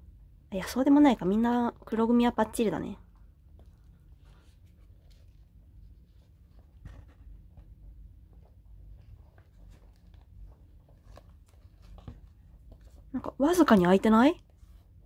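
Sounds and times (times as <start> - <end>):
low steady hum: 0.0 - 15.0
soft rustling handling noise: 3.0 - 15.0.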